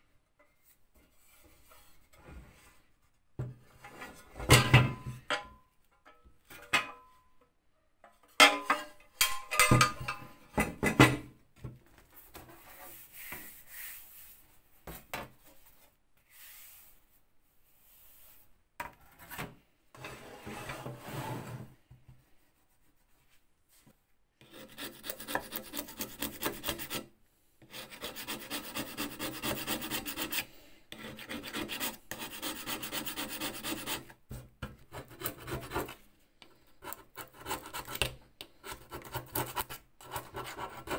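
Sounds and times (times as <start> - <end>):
hand tool scraping filler on metal: 24.4 - 27.0, 27.6 - 34.1.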